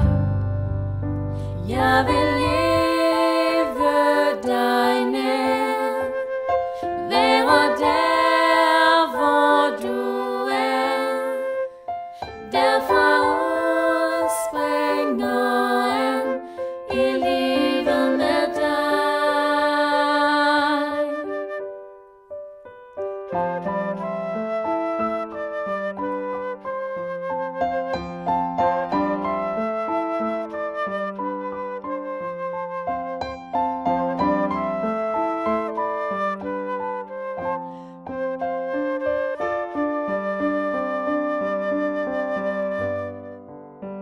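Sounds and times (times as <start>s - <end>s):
bass: 0.0s - 3.8s
women singing worship song: 1.6s - 6.2s, 6.8s - 11.5s, 12.2s - 21.2s.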